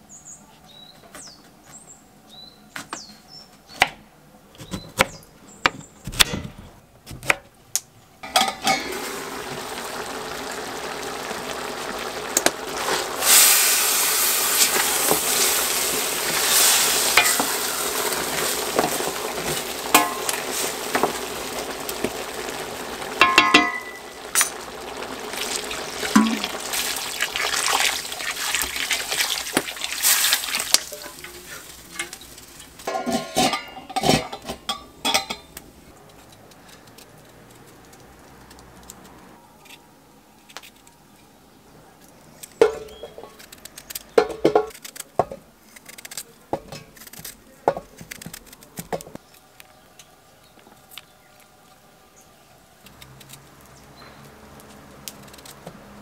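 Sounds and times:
hiss of cooking: 8.3 - 33.5.

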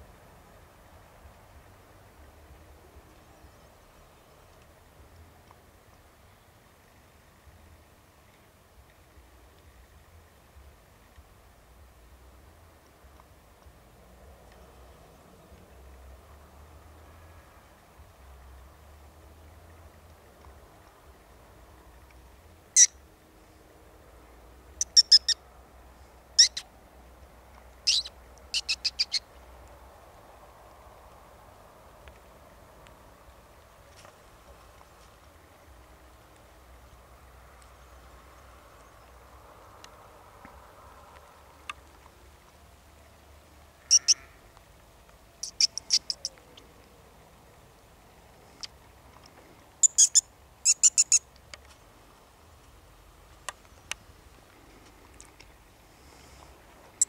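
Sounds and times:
faint ticks: 0.9 - 23.6, 24.8 - 57.0
high-pitched lip squeaks: 24.9 - 25.4, 27.9 - 29.1, 49.8 - 51.2.

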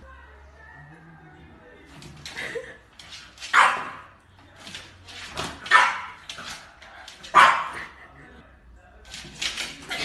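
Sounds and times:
puppy barking: 3.5 - 4.2, 5.7 - 6.2, 7.3 - 8.0.

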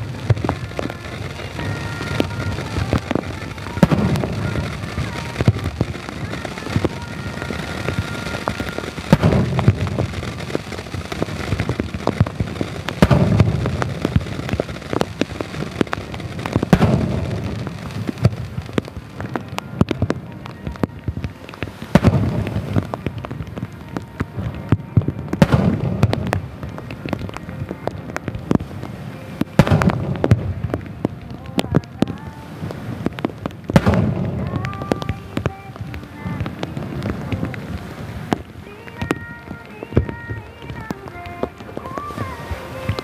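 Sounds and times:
firework booms: 0.0 - 43.0
firework crackles and pops: 0.0 - 43.0.

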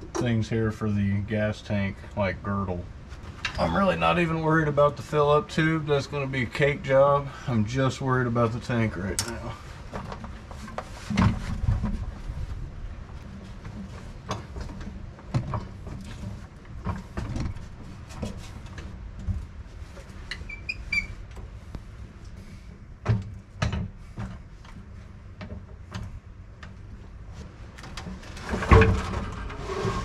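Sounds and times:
fuel tank clunks and scrapes: 9.6 - 12.6, 13.4 - 21.7, 27.4 - 30.0.

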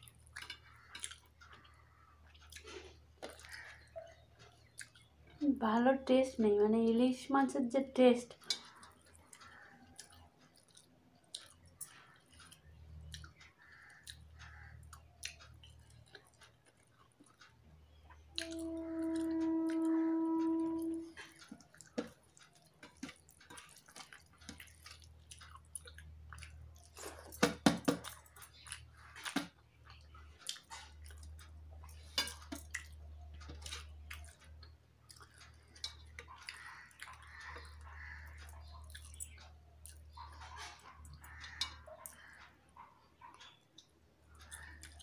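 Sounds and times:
chewing: 0.0 - 5.4, 8.3 - 45.0
fingers mixing rice: 8.4 - 29.5
steady held tone: 18.4 - 21.2.

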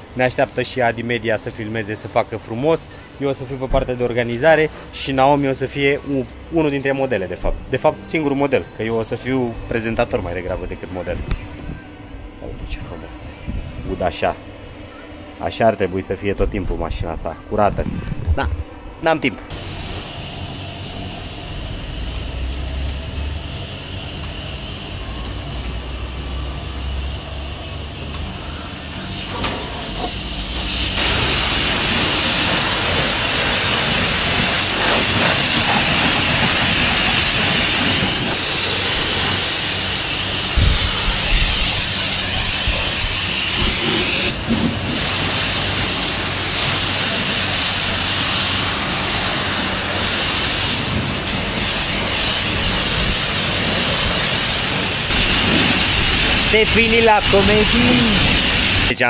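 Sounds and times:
water jet hissing: 19.5 - 59.0.

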